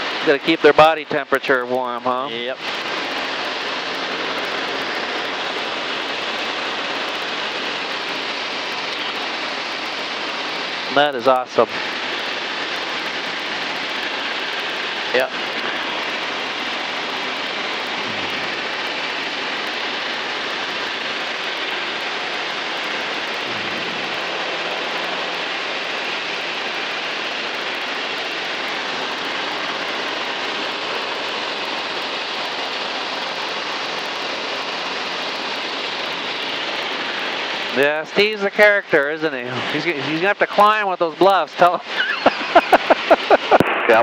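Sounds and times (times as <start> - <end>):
aircraft airflow roar: 0.0 - 44.0
low engine hum: 2.7 - 32.7.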